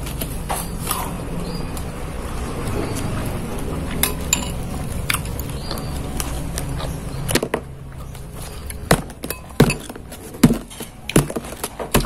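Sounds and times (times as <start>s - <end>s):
metal spoon clinking glass bowl: 4.0s - 4.7s, 9.3s - 9.9s.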